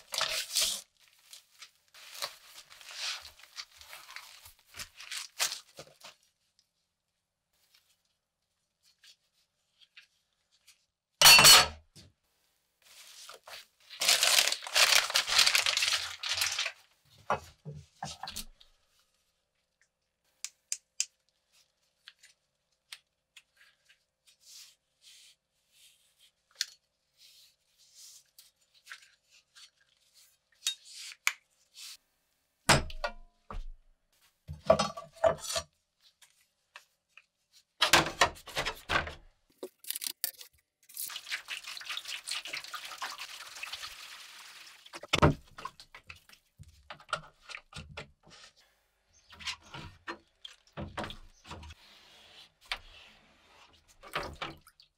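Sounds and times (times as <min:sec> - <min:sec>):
liquid pouring and splashing: 0:40.8 - 0:46.6, 0:53.9 - 0:54.9.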